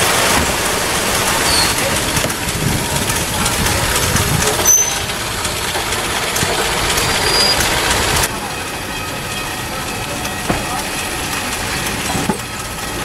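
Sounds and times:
railcar engine rumble and clatter: 0.0s - 13.0s
brief high squeak: 1.4s - 1.8s, 4.6s - 5.1s, 7.2s - 7.7s.

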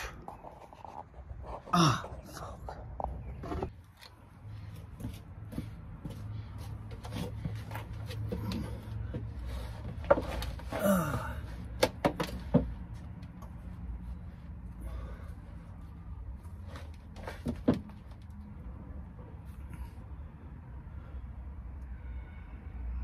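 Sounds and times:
man shuffling and scraping: 0.0s - 18.4s
knocks and clicks on van underside: 11.7s - 13.3s, 17.0s - 18.3s.

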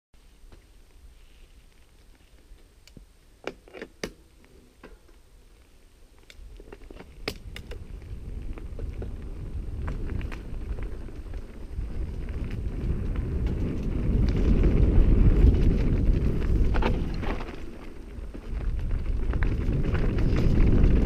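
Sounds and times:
bike clicking and rattling: 6.1s - 21.0s
wind on microphone: 6.4s - 21.0s
tyres rumbling on dirt: 7.8s - 21.0s.

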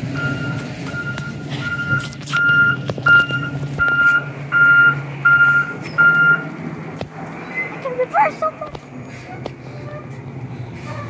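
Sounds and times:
truck reverse alarm beeping: 0.0s - 6.5s
truck engine running: 0.0s - 11.0s.

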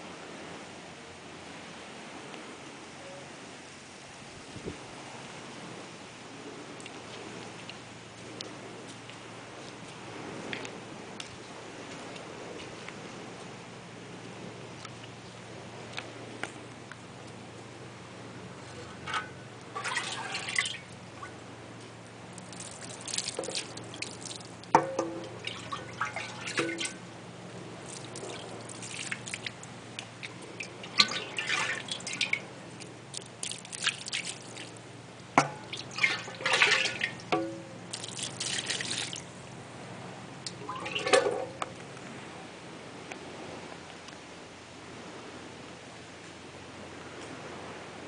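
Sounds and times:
water splashing on stone: 22.3s - 27.0s, 27.8s - 34.8s, 35.4s - 39.3s.

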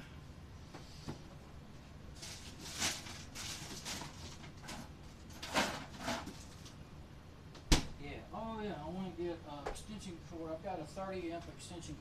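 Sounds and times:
packages rustling and scraping: 2.1s - 6.8s.

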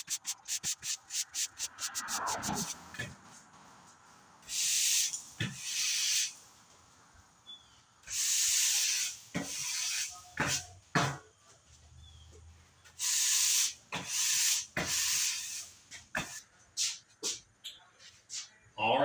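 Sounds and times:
push broom sweeping concrete: 0.0s - 2.9s.

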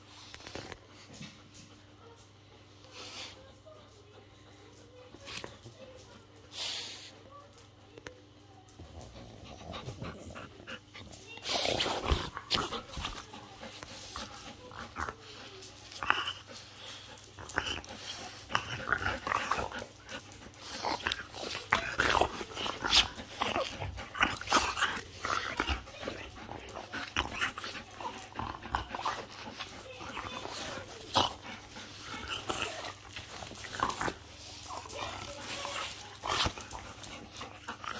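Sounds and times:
dog growling: 8.7s - 37.9s.

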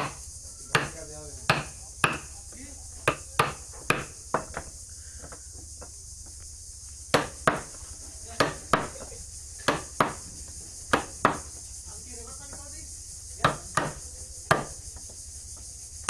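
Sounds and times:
mallet striking chisel into wood: 0.0s - 2.3s, 3.0s - 4.7s, 7.1s - 7.7s, 8.4s - 9.0s, 9.6s - 10.2s, 10.9s - 11.5s, 13.4s - 14.7s.

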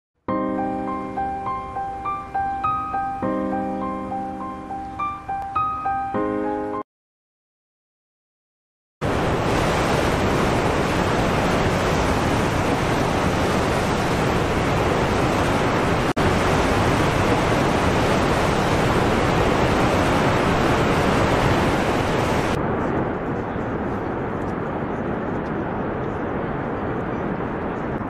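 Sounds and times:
waterfall rushing: 9.0s - 22.6s.

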